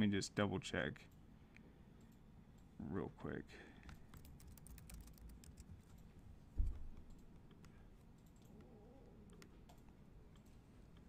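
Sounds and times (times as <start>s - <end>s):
typing on laptop keyboard: 3.8s - 6.0s.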